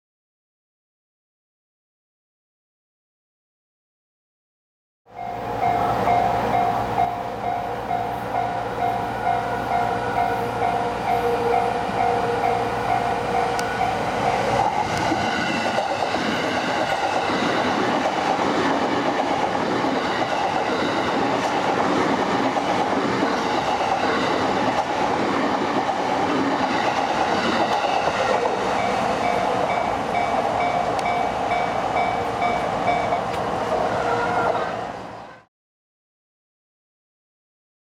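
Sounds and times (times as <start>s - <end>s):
train wheels clattering on rails: 12.0s - 33.6s.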